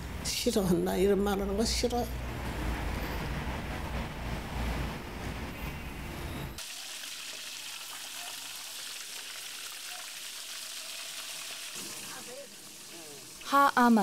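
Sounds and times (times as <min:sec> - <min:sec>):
fish sizzling in hot oil: 0:06.6 - 0:14.0.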